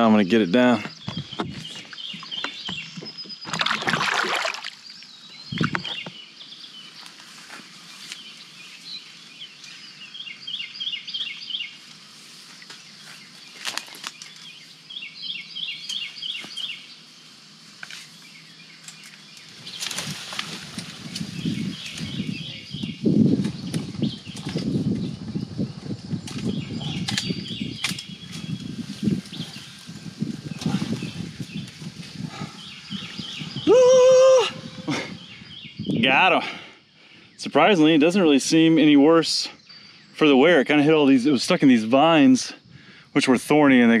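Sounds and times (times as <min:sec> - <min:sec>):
songbird chirping: 0:00.0 - 0:44.0
brush rustling and snapping: 0:07.0 - 0:08.4, 0:11.4 - 0:14.6, 0:15.8 - 0:16.8, 0:17.4 - 0:22.3, 0:26.2 - 0:32.2.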